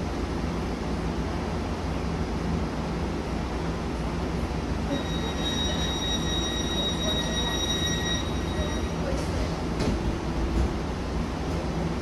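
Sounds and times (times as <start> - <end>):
tram low rumble: 0.0 - 12.0
high-pitched wheel squeal: 4.9 - 9.1.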